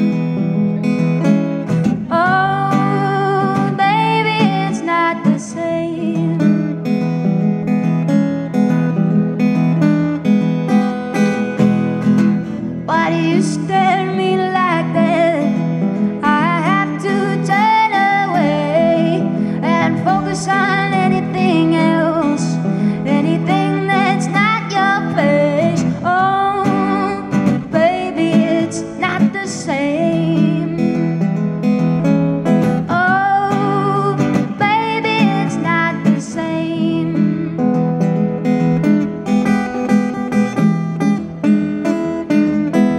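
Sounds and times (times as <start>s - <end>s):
strummed acoustic guitar: 0.0s - 42.9s
woman singing blues: 1.8s - 7.0s, 12.7s - 31.1s, 32.6s - 38.0s.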